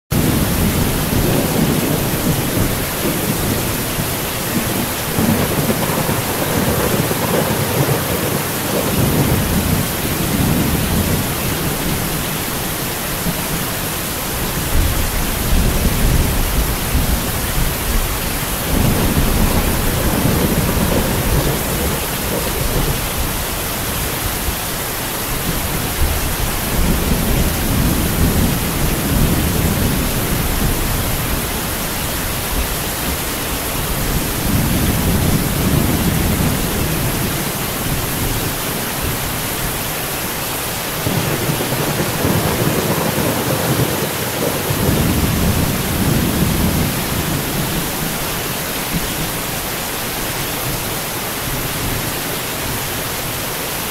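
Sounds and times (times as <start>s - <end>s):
heavy rain falling: 0.1s - 53.9s
low rolls of thunder: 0.2s - 12.4s, 14.6s - 24.6s, 25.4s - 31.7s, 34.0s - 38.4s, 41.0s - 48.2s.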